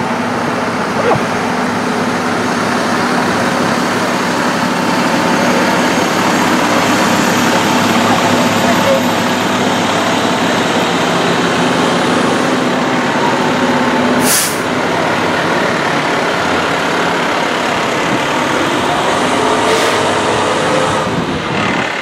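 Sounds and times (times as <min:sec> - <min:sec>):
fire truck engine running: 0:00.0 - 0:22.0
air brakes hissing: 0:14.2 - 0:14.7.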